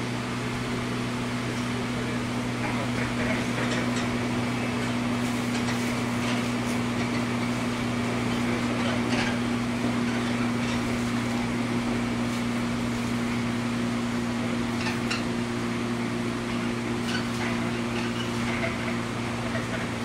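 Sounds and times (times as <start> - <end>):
train electrical hum: 0.0 - 20.0
train mechanical rumble: 0.0 - 20.0.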